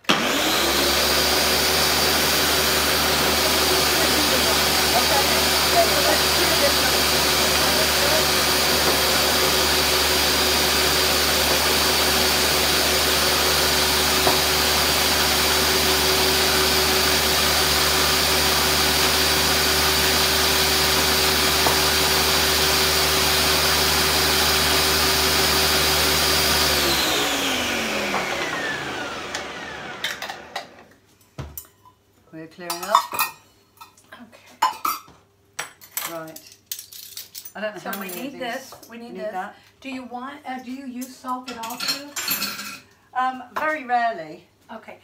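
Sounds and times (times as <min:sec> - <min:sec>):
blender running with high whine: 0:00.0 - 0:30.9.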